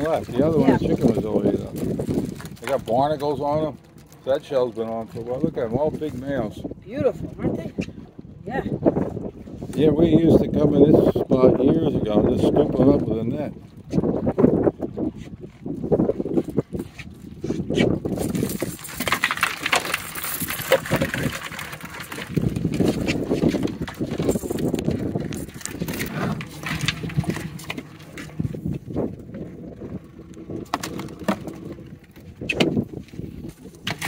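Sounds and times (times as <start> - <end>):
wire and shells rattling: 18.1 - 29.4.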